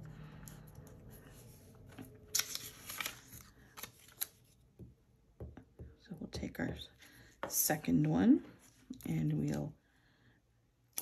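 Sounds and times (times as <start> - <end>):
paper pieces rustling and sliding: 1.1 - 4.4.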